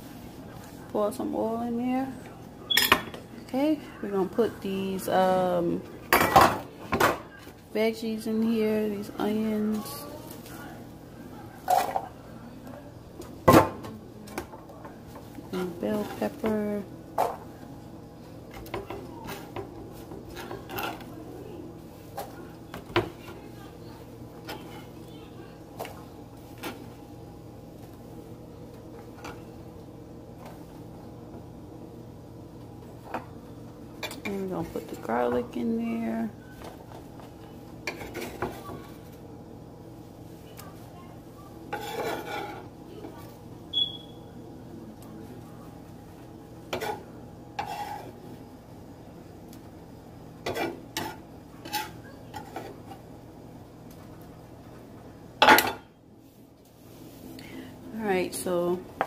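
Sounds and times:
steady low hum: 0.0s - 59.0s
utensil clanking and scraping a pan: 18.5s - 21.1s, 36.6s - 39.2s, 41.7s - 43.2s, 46.7s - 48.3s, 50.4s - 53.0s.

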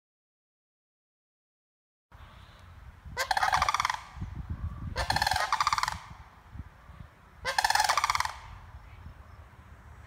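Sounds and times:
cranes calling: 3.2s - 9.0s.

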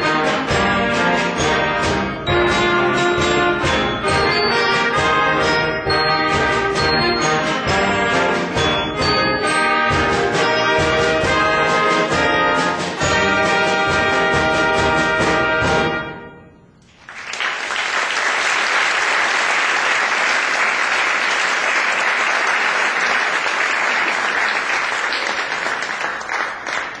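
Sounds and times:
concert band playing: 0.0s - 16.5s
audience applause: 17.0s - 27.0s.

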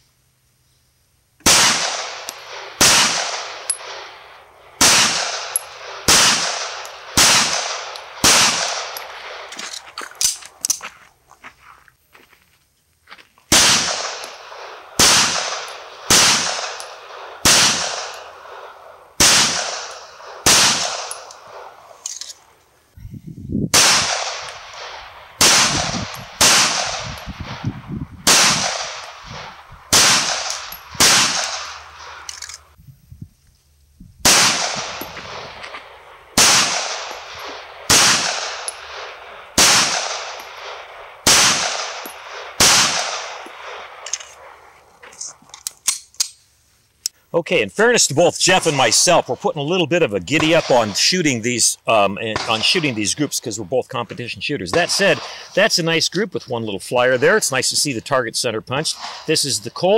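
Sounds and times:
pistol shots with echo: 1.4s - 9.5s, 13.5s - 21.9s, 23.8s - 27.6s, 28.2s - 32.3s, 34.2s - 44.5s, 50.3s - 51.1s, 52.3s - 53.1s.

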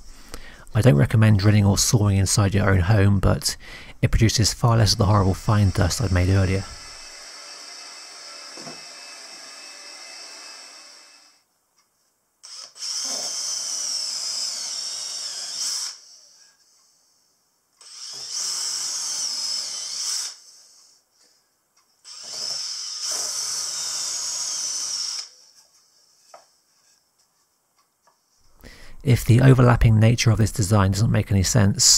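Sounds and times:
cordless drill whining: 5.5s - 11.4s, 12.4s - 16.4s, 17.8s - 20.8s, 22.0s - 25.5s.

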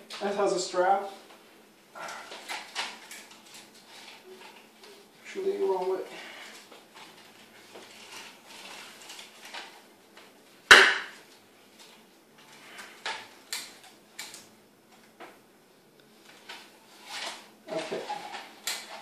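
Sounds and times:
strap and cable rustling: 0.1s - 15.4s, 16.0s - 19.0s
sharp knock of hard parts: 10.7s - 11.2s.

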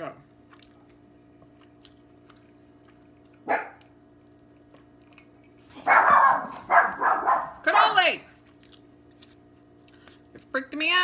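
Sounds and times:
dog barking: 3.4s - 3.9s, 5.8s - 8.0s.

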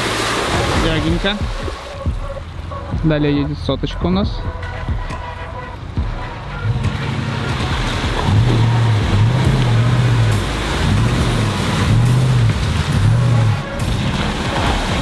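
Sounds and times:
wheels splashing through mud: 0.0s - 2.8s, 5.8s - 15.0s
car engine revving: 0.0s - 15.0s.

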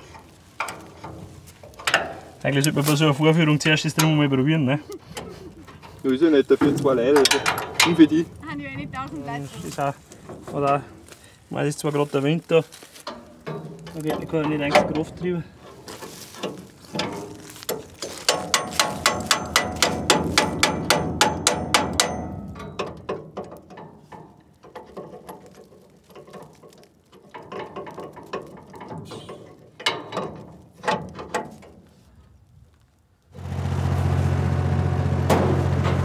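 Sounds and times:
tractor engine running: 13.0s - 25.7s, 33.4s - 36.0s.

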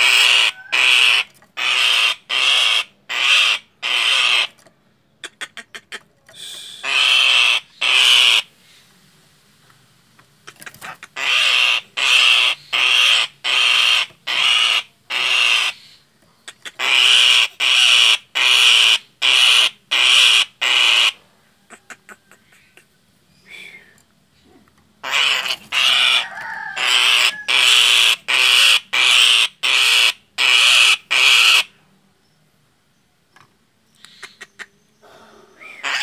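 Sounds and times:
bird rasping alarm screeches: 0.0s - 4.6s, 6.8s - 8.5s, 11.2s - 16.0s, 25.0s - 31.7s, 35.6s - 36.0s.

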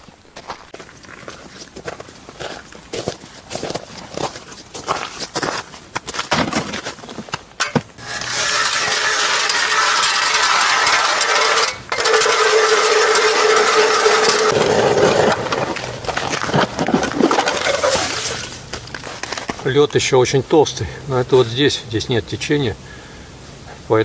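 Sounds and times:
auger knocking and scraping: 6.3s - 19.7s
ice auger grinding through ice: 8.0s - 18.6s.

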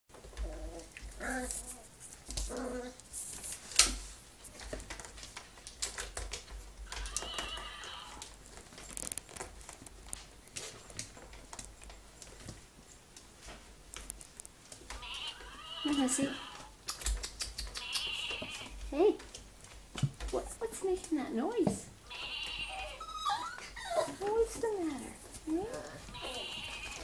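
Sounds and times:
short pitched animal calls: 26.1s - 27.0s.

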